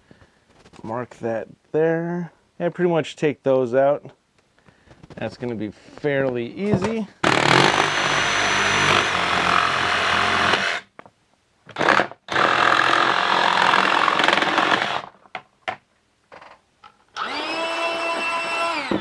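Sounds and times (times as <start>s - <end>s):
jigsaw cutting plastic: 7.2s - 10.8s, 11.7s - 15.1s, 17.2s - 19.0s
motor whining: 17.2s - 19.0s.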